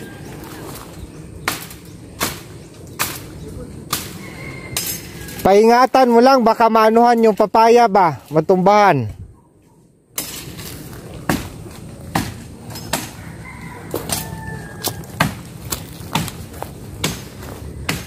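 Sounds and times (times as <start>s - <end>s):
knife chopping into wood: 15.2s - 16.4s.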